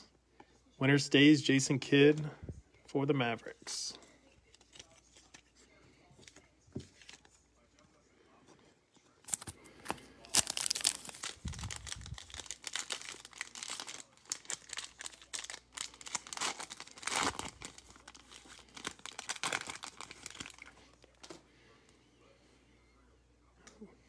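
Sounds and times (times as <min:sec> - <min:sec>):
foil wrapper crinkling and tearing: 0:09.2 - 0:21.0.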